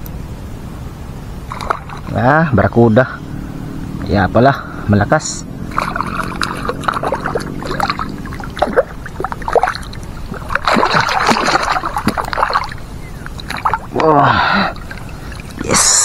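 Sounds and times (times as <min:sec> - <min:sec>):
fish thrashing and splashing: 0:01.5 - 0:02.3, 0:05.6 - 0:15.7.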